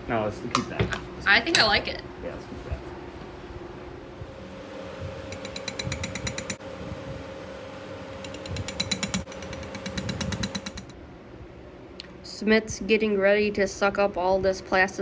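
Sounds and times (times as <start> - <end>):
faint steady hum: 0.0 - 15.0
metal spatula clicking on glass: 5.3 - 6.6.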